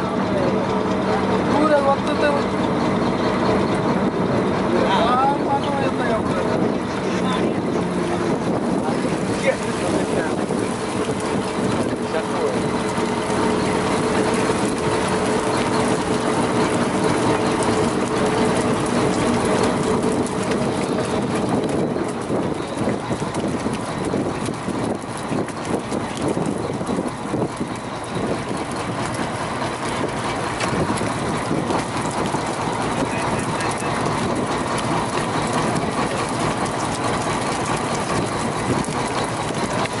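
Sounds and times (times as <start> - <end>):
boat engine humming: 0.0 - 40.0
fish flapping on deck: 8.3 - 40.0.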